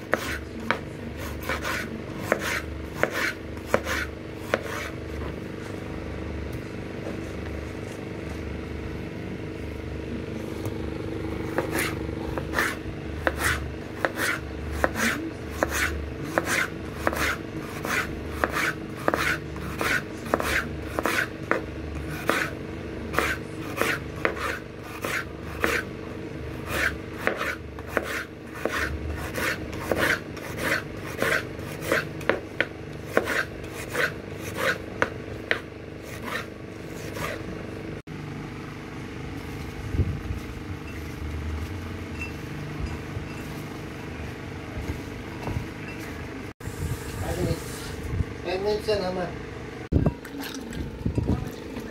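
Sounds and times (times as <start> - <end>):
knife slicing on cutting board: 0.0 - 5.0, 11.5 - 21.3, 23.1 - 25.9, 26.7 - 32.4, 33.1 - 37.5.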